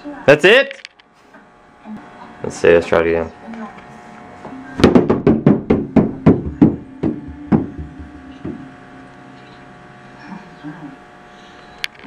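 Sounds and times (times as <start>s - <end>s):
rubber ball bouncing on carpeted stairs: 4.8s - 8.7s.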